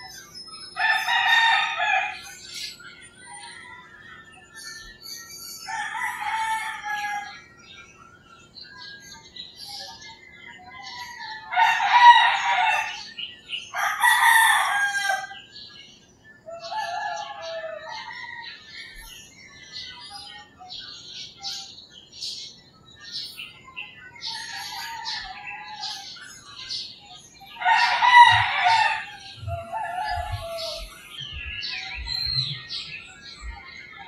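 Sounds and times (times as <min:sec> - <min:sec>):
roosters crowing: 0:00.0 - 0:02.7, 0:05.6 - 0:07.7, 0:10.6 - 0:15.7, 0:16.4 - 0:19.3, 0:24.2 - 0:26.8, 0:27.4 - 0:34.0
small birds chirping: 0:00.0 - 0:34.0.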